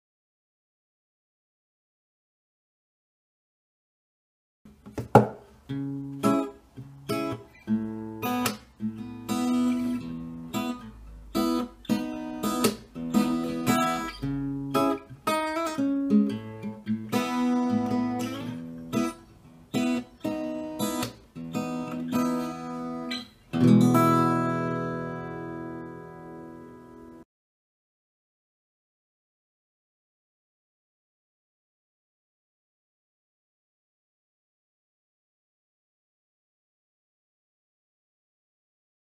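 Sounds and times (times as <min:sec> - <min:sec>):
acoustic guitar fingerpicking: 0:04.7 - 0:27.2
strummed guitar chord ringing: 0:19.8 - 0:27.2.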